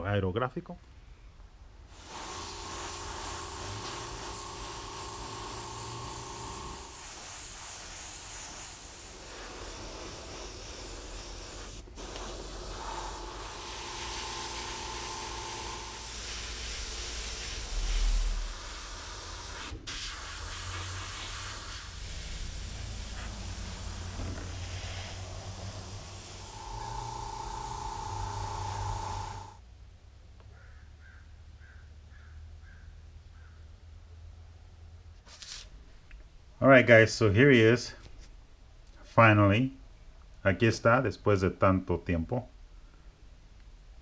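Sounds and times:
airbrush hissing: 1.9 - 29.6
low hum: 22.4 - 29.6.

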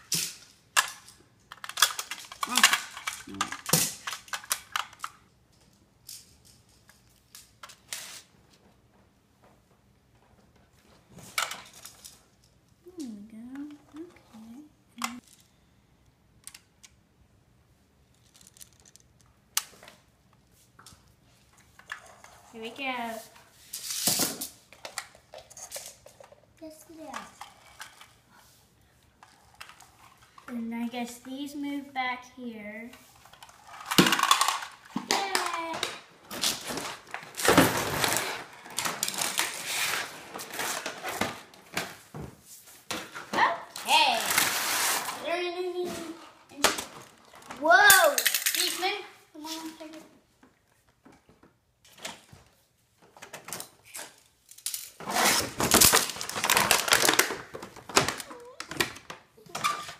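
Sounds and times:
plastic pieces clicking and rattling: 0.1 - 8.1, 18.1 - 19.7, 33.2 - 39.8, 46.6 - 49.0, 53.1 - 59.9
plastic packaging crinkling: 55.1 - 59.0.

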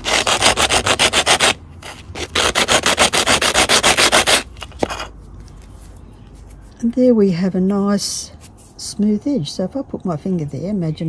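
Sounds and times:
tile rubbing on sanding pad: 2.2 - 4.4.

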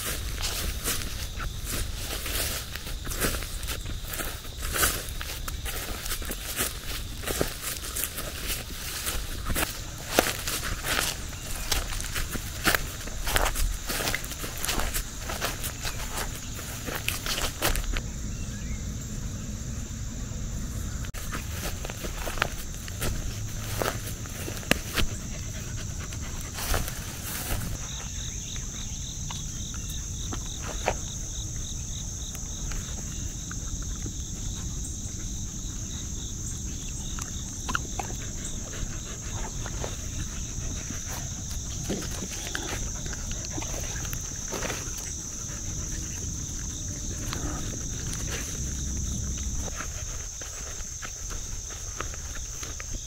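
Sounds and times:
dogs rustling through grass: 0.0 - 18.0, 21.1 - 28.3
insect chorus: 0.0 - 53.0
insect rapid pulsing call: 0.0 - 53.0.

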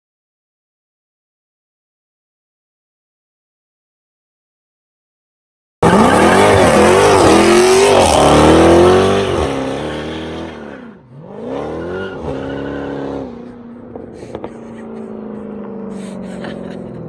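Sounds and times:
car engine revving: 5.8 - 17.0.

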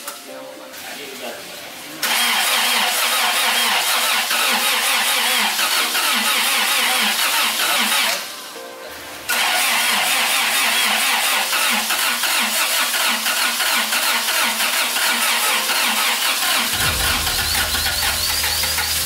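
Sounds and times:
starter cranking engine: 2.0 - 8.3, 9.3 - 19.0
deep low rumble: 16.8 - 19.0.

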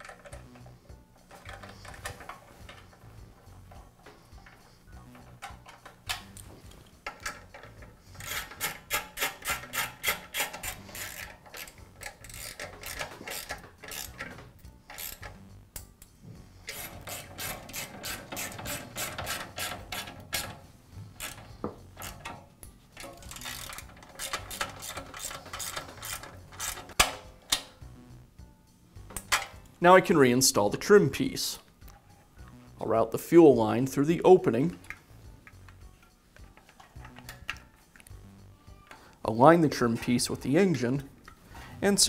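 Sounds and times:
socket ratchet clicking: 0.0 - 27.8, 34.8 - 38.2.

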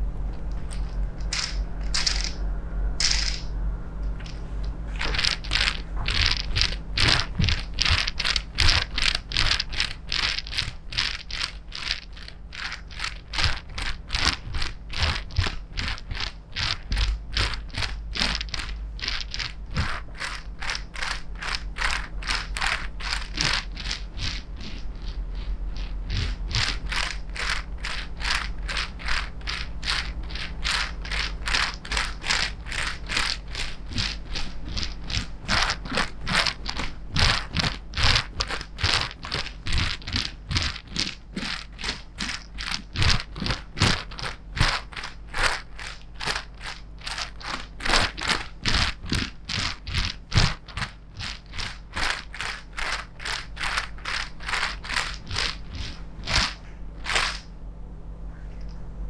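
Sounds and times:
plastic rollers clicking rattle: 4.2 - 57.5.

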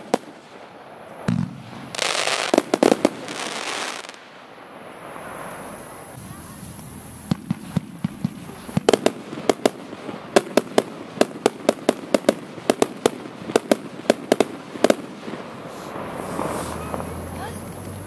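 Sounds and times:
firework cake bangs: 1.2 - 4.0, 7.2 - 17.2.

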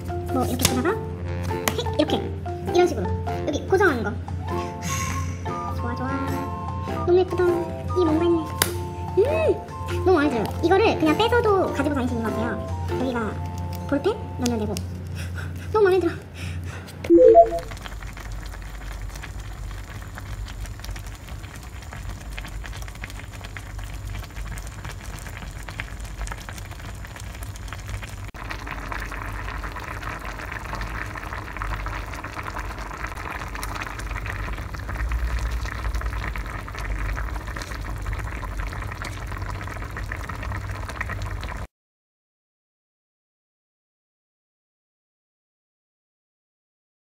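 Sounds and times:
low rumble of gas stove: 7.2 - 17.1, 17.7 - 41.6
stew bubbling in a pan: 17.5 - 41.7.

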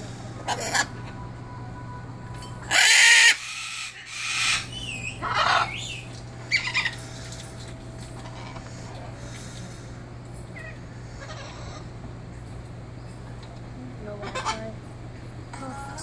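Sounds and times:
cockatoo calling: 0.4 - 1.0, 2.7 - 7.3, 8.2 - 12.0, 14.2 - 14.8.

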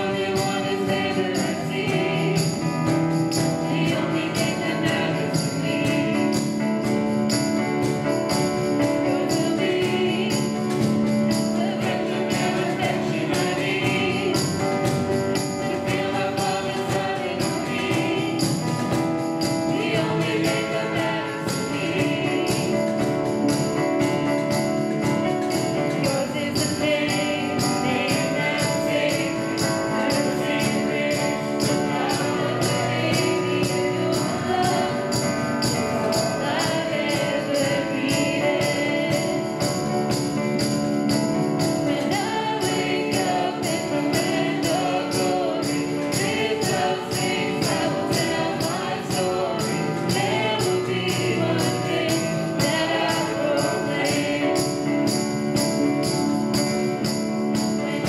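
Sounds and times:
person singing: 0.0 - 40.8, 41.6 - 56.0
worship song with band: 0.0 - 58.0.

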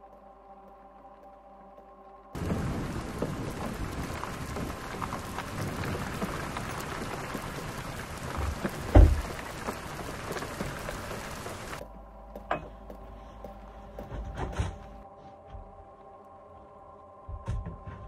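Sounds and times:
heavy rain: 2.3 - 11.8.

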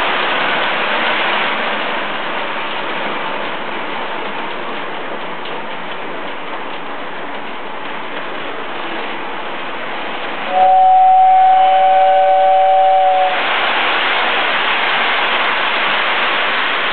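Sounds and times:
loud hiss: 9.1 - 16.9
toy train whistle chord: 10.5 - 13.4.

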